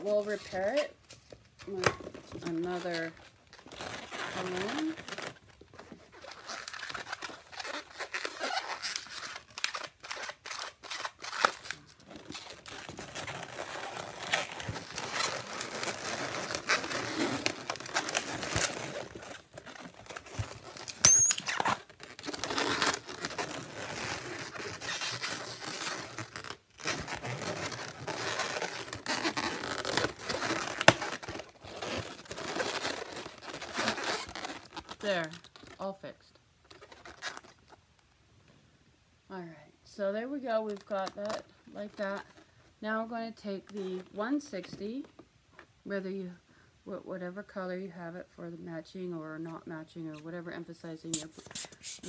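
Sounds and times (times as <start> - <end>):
balloons squeaking and rubbing: 0.0 - 38.0, 51.0 - 52.0
sharp high balloon squeak: 6.1 - 11.6, 20.7 - 34.8.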